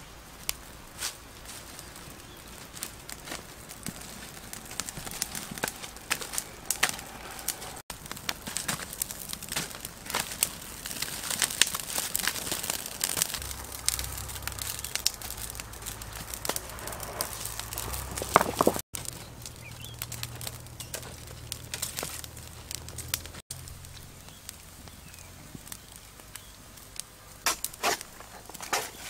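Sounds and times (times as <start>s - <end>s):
wood fire crackling and popping: 0.0s - 29.0s
low steady rumble: 13.3s - 27.4s.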